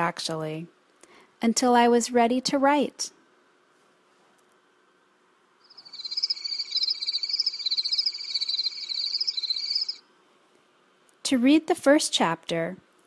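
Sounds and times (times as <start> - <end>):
crickets chirping: 5.6 - 10.0.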